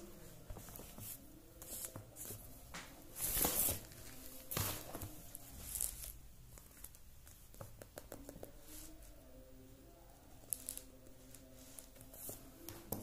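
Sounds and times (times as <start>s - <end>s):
book handling rustles: 0.5s - 7.0s.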